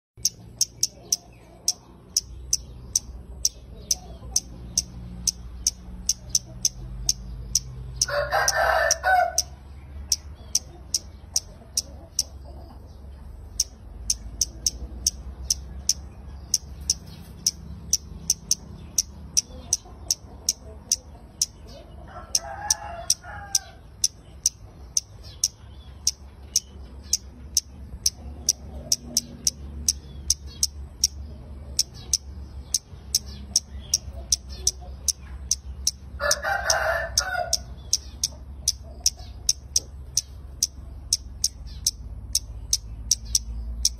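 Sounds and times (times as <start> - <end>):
rooster crowing: 8.0 - 9.6, 22.0 - 23.8, 36.2 - 37.8.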